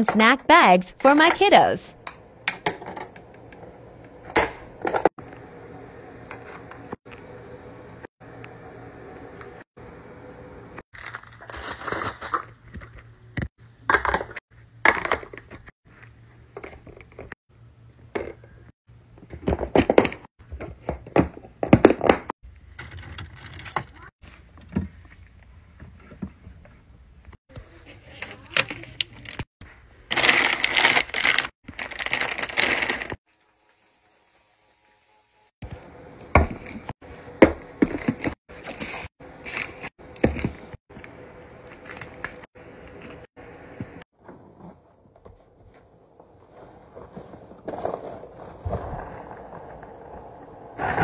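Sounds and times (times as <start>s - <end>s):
packets rustling: 30.1s - 33.2s.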